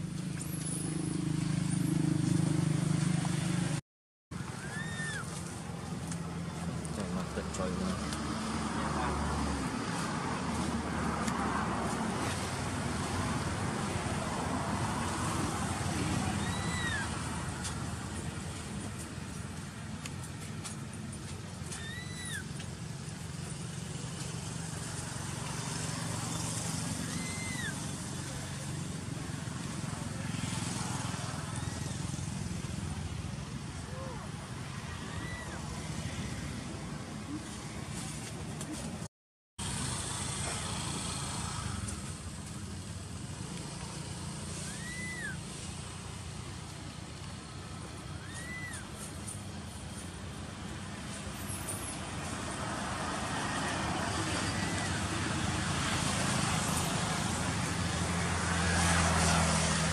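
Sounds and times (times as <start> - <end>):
baby monkey whistle-like cry: 4.6 - 5.2, 16.4 - 17.1, 21.8 - 22.5, 27.1 - 27.8, 44.6 - 45.4, 48.2 - 48.9.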